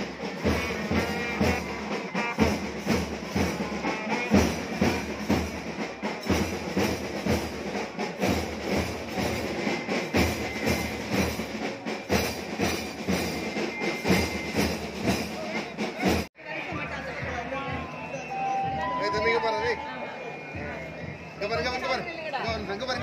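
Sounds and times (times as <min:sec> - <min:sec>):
trumpets: 0:00.0 - 0:07.4
steady drum beat: 0:00.0 - 0:19.8, 0:20.5 - 0:23.0
marching band playing: 0:00.0 - 0:23.0.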